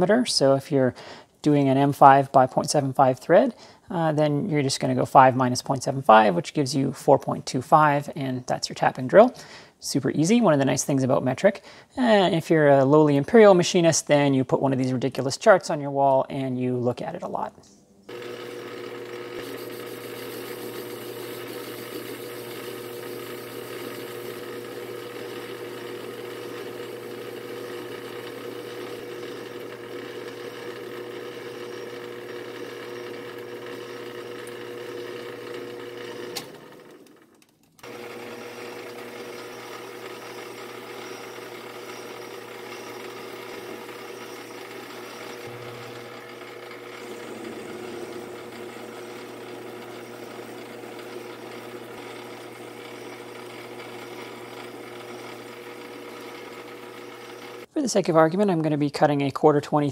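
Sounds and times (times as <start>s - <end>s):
metal lathe motor whine: 18.1s - 37.2s, 37.8s - 57.7s
drill boring metal: 18.1s - 57.7s.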